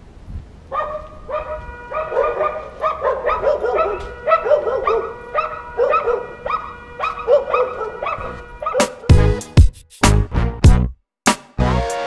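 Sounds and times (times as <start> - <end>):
small dog yapping: 0.7 - 9.1.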